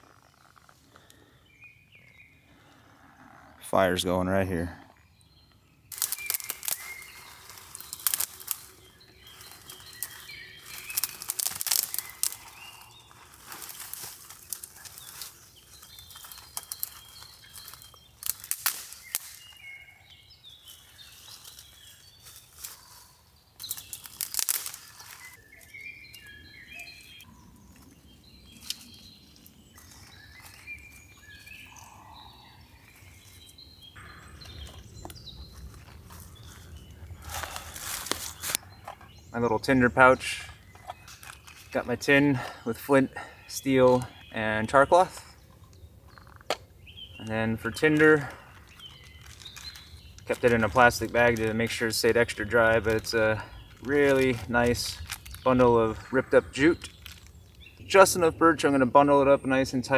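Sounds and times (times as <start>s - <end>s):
rustling and crinkling: 0.0s - 1.3s, 5.9s - 26.2s, 32.8s - 39.3s, 40.5s - 41.9s, 45.4s - 46.7s, 47.8s - 57.9s
birds chirping: 0.0s - 59.9s.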